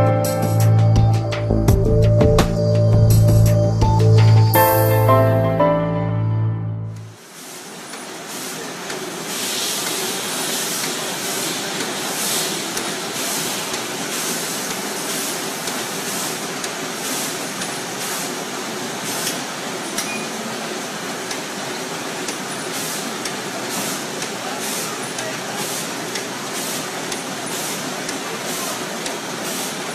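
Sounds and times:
conveyor hiss and clatter: 0:07.1 - 0:29.9.

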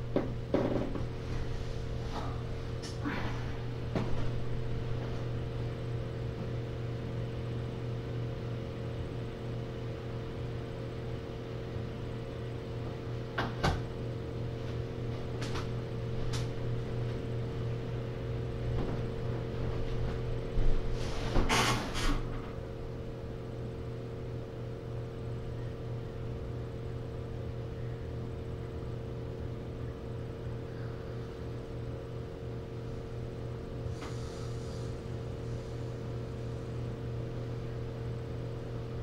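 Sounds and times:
mechanical hum of equipment: 0:00.0 - 0:39.0.

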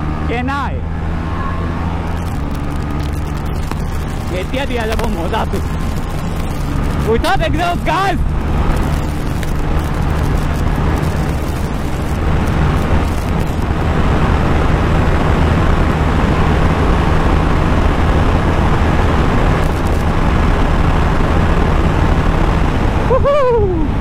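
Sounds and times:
motorcycle engine at high revs: 0:00.0 - 0:23.1
wind rush: 0:00.8 - 0:24.0.

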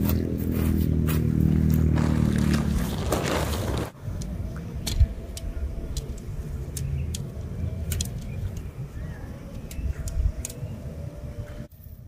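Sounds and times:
low wind rumble: 0:00.0 - 0:12.0
tent fabric rustling: 0:00.6 - 0:04.0
tent poles clicking together: 0:02.0 - 0:10.8.

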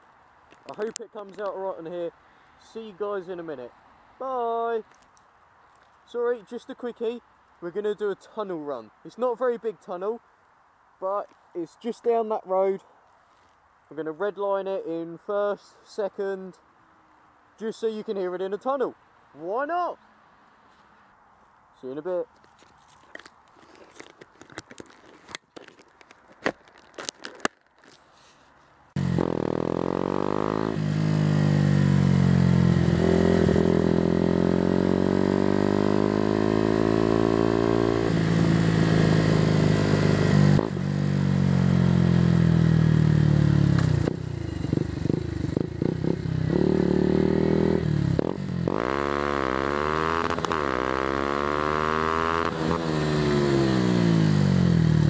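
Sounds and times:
motorcycle engine accelerating: 0:29.0 - 0:55.0.

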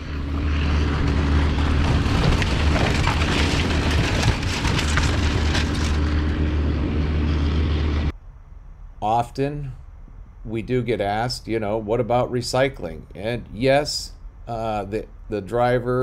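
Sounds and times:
excavator diesel engine running: 0:00.0 - 0:08.1
boat hull crackling and crunching: 0:00.2 - 0:06.8.

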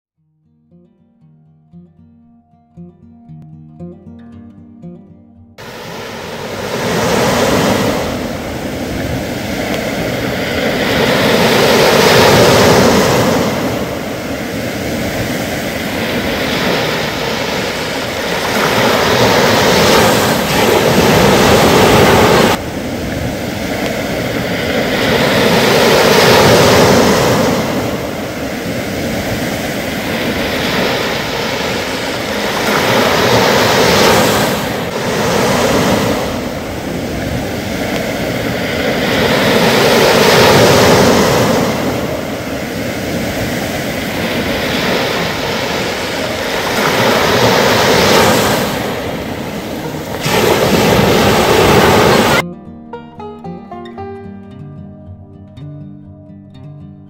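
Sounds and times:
waves breaking on beach: 0:05.6 - 0:52.4.

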